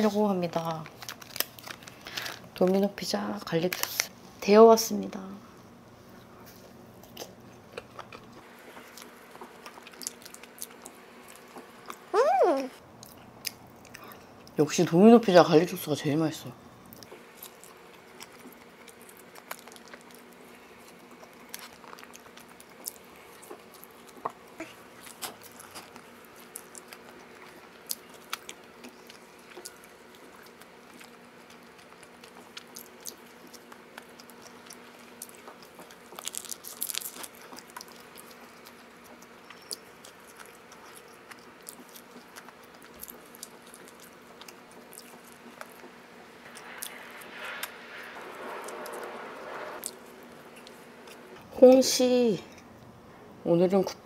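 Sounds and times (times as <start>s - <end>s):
faint steady hum: 0.0s - 54.0s
pizza being bitten and chewed: 6.2s - 12.1s, 16.8s - 49.2s.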